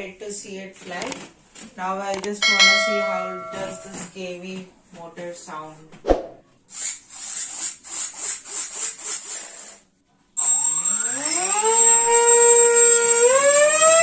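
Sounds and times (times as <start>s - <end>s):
electric motor and propeller whine: 10.4s - 14.0s.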